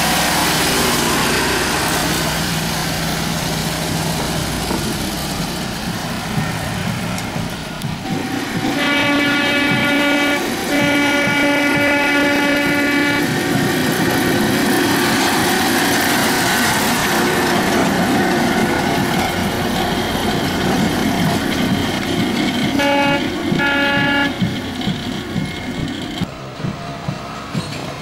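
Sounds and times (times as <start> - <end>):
wheels rumbling on rails: 0.0 - 28.0
horn blasts: 8.0 - 13.4, 22.7 - 24.6.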